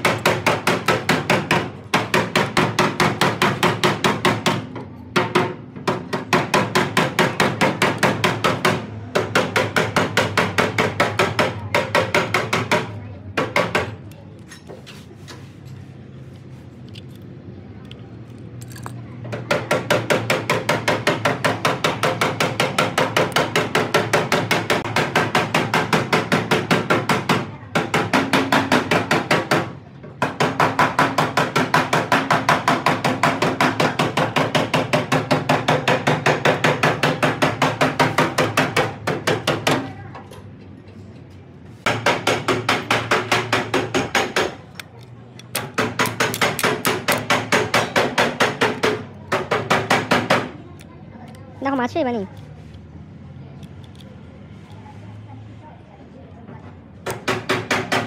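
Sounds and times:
hammer striking rapidly: 0.0s - 14.0s, 41.9s - 44.6s, 45.5s - 50.6s, 57.0s - 58.0s.

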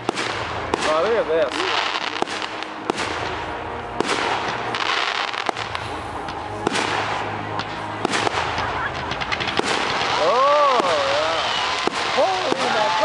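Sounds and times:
crackling hiss: 0.0s - 13.0s.

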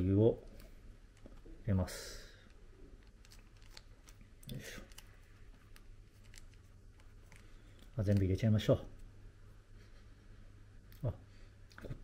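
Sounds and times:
low steady hum: 0.0s - 12.0s
plastic sachet crinkling: 3.0s - 8.6s.

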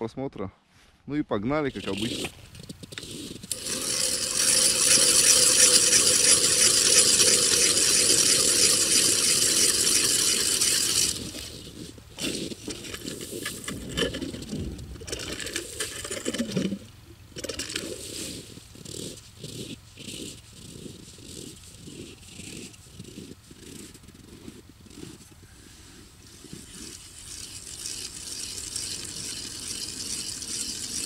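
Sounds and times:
rattling and handling noise: 1.7s - 25.4s.

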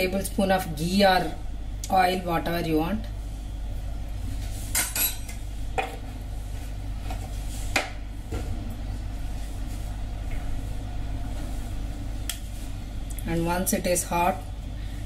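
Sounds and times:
steady low hum: 0.0s - 15.0s
metal kitchenware clinking: 4.7s - 5.3s.

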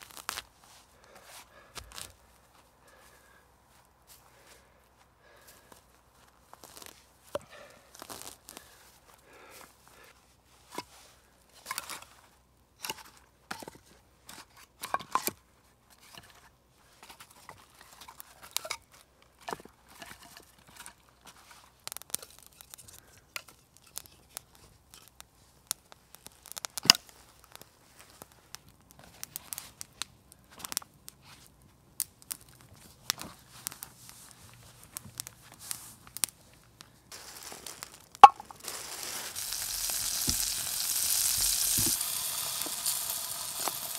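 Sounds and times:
hands handling food and gear: 0.0s - 4.5s, 5.3s - 15.4s, 16.0s - 42.9s
food sizzling in a pan: 37.2s - 43.9s.

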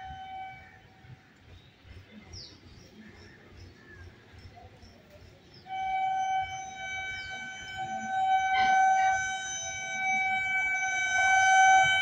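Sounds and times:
train horn long blast: 0.0s - 1.2s, 5.7s - 12.0s.

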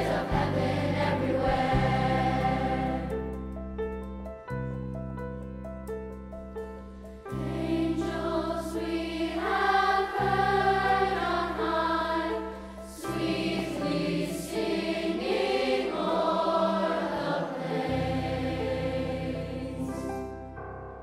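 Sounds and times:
choir singing sustained notes: 0.0s - 3.5s, 7.3s - 20.5s.

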